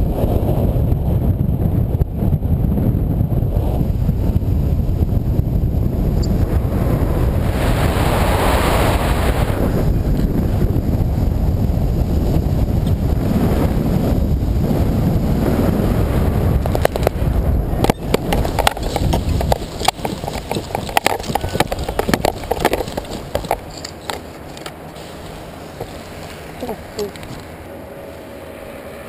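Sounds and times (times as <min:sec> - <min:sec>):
wind rushing over microphone: 0:00.0 - 0:29.0
running steps on dry ground: 0:16.7 - 0:27.5
knocks and rustles of landing: 0:17.8 - 0:27.5.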